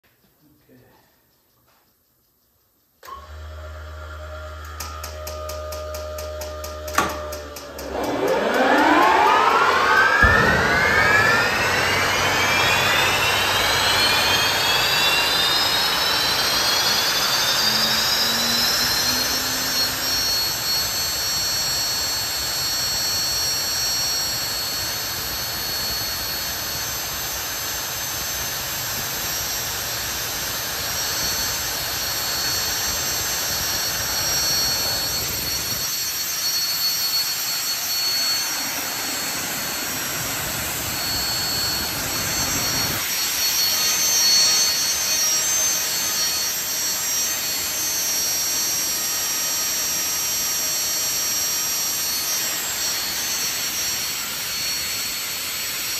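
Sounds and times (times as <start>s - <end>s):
turbine engine whine: 3.0s - 55.9s
even rushing noise: 7.9s - 14.0s.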